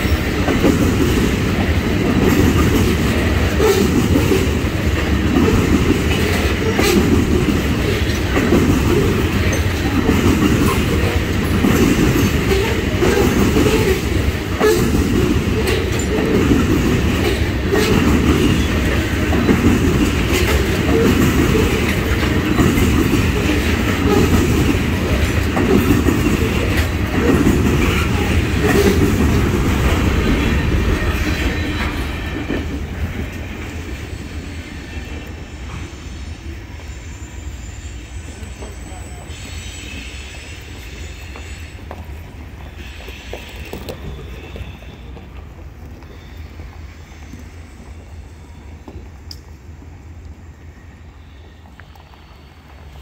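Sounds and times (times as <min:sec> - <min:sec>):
wheels clicking over rail joints: 0:00.0 - 0:33.4
train wheels rumbling on rail: 0:00.0 - 0:53.0.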